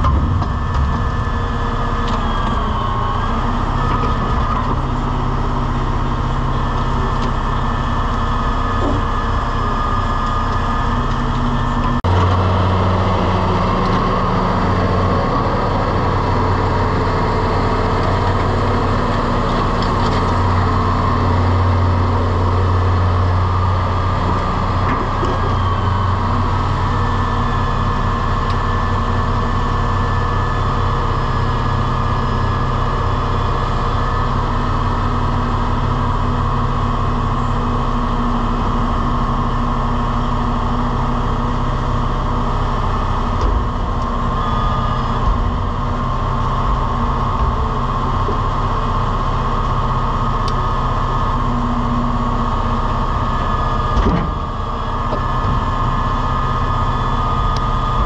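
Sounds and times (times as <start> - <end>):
truck engine and hydraulics: 0.0 - 58.0.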